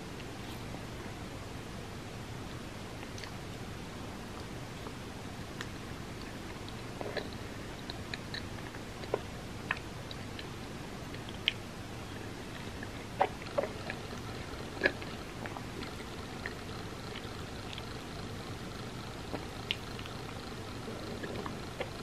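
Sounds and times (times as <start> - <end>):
wet chewing mouth sounds: 5.6 - 11.6, 12.2 - 22.0.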